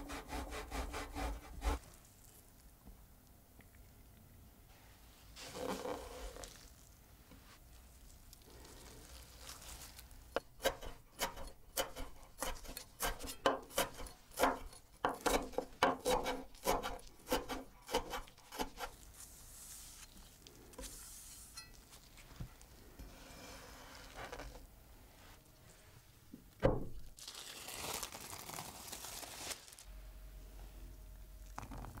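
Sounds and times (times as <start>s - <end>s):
knife chopping on wooden board: 10.6s - 18.9s.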